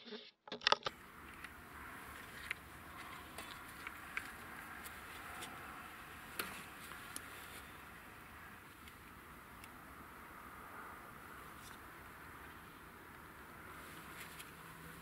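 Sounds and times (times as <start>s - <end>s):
rifle handling clicks and knocks: 0.5s - 1.6s.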